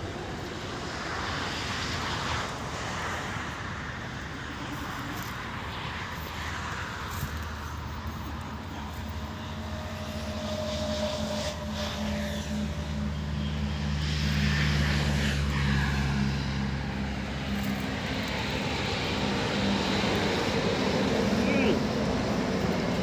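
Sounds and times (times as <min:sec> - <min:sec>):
low engine drone: 0:00.0 - 0:23.0.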